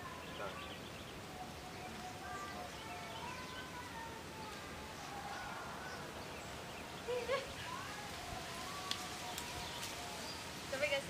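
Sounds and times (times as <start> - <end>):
faint voices: 0.0 - 11.0
steady outdoor noise: 0.0 - 11.0.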